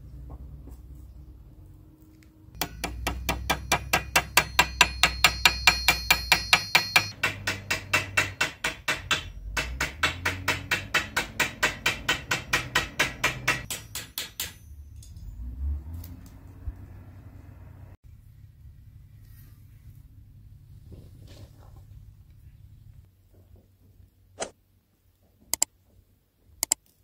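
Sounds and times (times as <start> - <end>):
chopping on a cutting board: 7.2 - 13.7.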